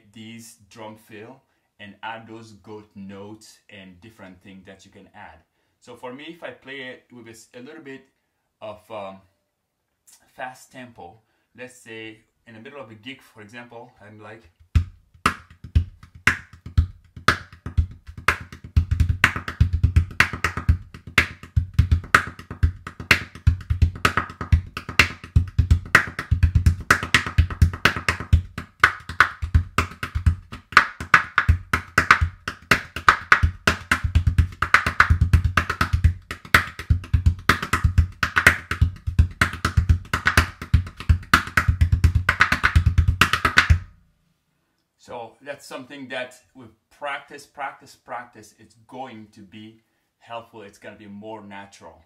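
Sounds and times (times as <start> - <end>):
gourd drum played by hand: 14.6 - 44.0.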